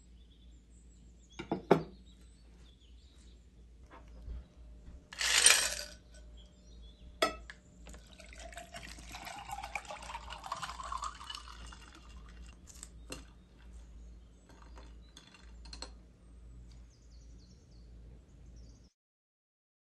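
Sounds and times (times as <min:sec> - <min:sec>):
ice clinking in glass: 0:05.2 - 0:06.0, 0:07.2 - 0:13.3
water pouring into glass: 0:07.9 - 0:13.3.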